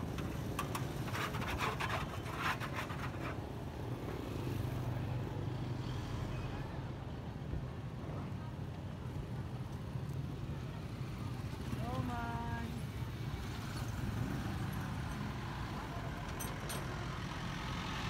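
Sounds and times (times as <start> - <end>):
sharp clicks and clatter: 0.0 - 3.4.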